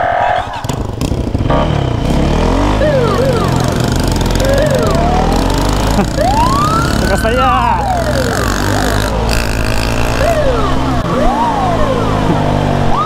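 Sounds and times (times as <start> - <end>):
siren yelps and wails: 0.0 - 0.7, 2.6 - 9.0, 10.0 - 13.0
motorcycle engine accelerating: 0.5 - 13.0.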